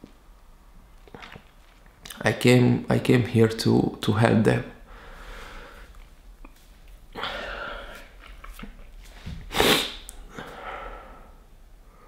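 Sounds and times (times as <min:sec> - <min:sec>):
loud sharp sniff: 0:09.2 - 0:10.6.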